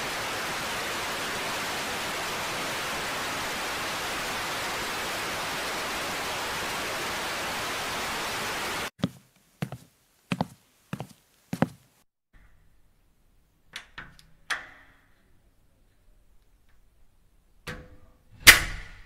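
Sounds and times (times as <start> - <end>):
static hiss: 0.0 - 12.0.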